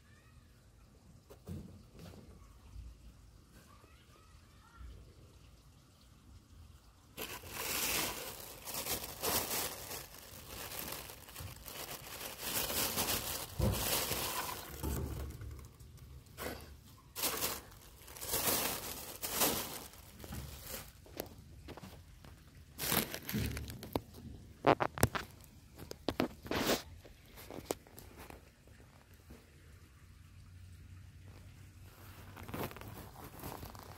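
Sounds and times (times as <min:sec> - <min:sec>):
plastic sheeting crinkling: 0:07.2 - 0:28.7, 0:31.8 - 0:33.9.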